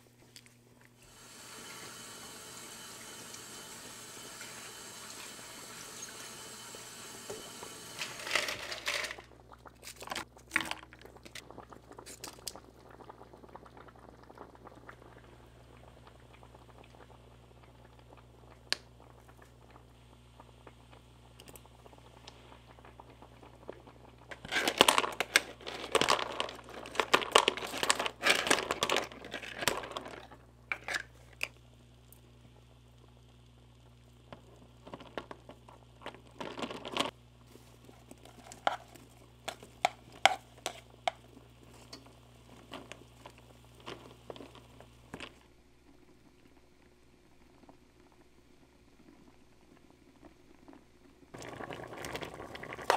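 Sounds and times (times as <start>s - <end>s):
liquid bubbling: 9.2s - 52.9s
crinkling and rustling: 24.3s - 31.5s, 34.8s - 45.4s.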